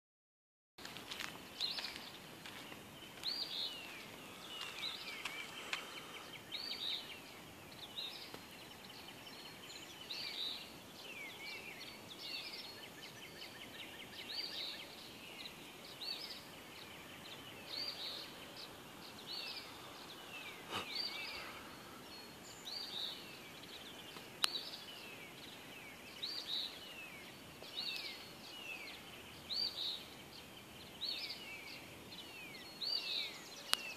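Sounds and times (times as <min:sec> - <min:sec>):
songbirds singing: 0:00.8 - 0:33.9.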